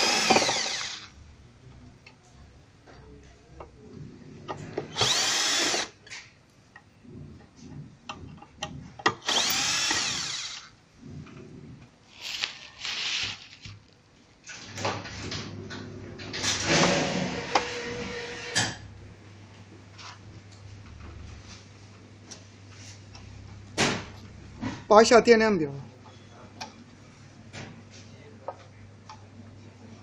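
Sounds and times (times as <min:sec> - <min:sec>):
electric screwdriver whirring: 0:00.0 - 0:01.1, 0:04.9 - 0:05.9, 0:09.2 - 0:10.7, 0:12.2 - 0:13.6.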